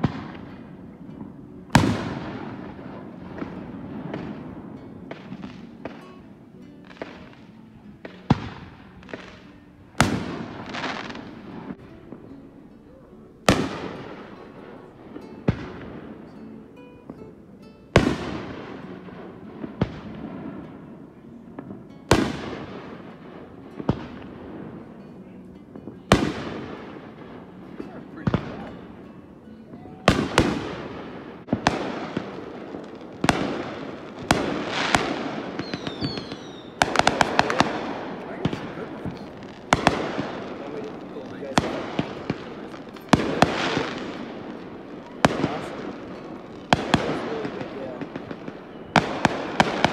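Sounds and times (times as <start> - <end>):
fireworks bangs: 0.0 - 16.5, 17.9 - 49.9
fireworks crackling: 0.0 - 49.9
firework whistle: 34.2 - 40.5, 43.0 - 49.9.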